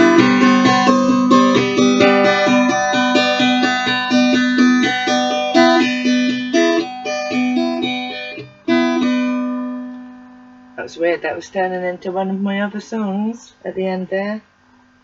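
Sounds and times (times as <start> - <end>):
acoustic guitar strumming chords: 0.0 - 11.8.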